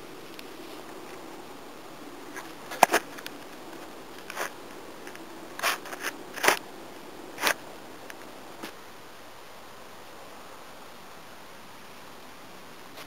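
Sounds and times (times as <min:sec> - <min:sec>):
scratchy rustles in grass: 0:00.0 - 0:08.8
low steady hum: 0:00.0 - 0:13.0.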